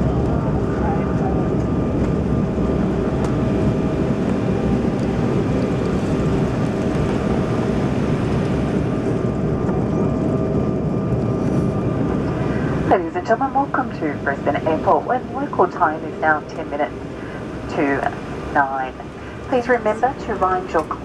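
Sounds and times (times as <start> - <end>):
jet engine and wheels rumble: 0.0 - 21.0
faint steady whine: 11.1 - 21.0.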